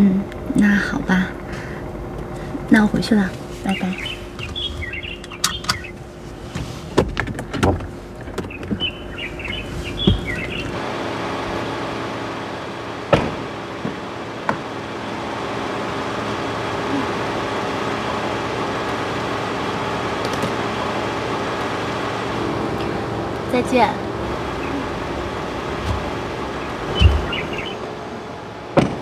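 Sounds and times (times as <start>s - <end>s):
steady hum: 0.0s - 29.0s
birds chirping: 0.5s - 6.4s, 7.4s - 10.8s, 16.1s - 28.7s
car door clicks and thumps: 6.6s - 8.9s, 28.8s - 29.0s
door shutting knock: 26.9s - 27.5s, 28.8s - 29.0s.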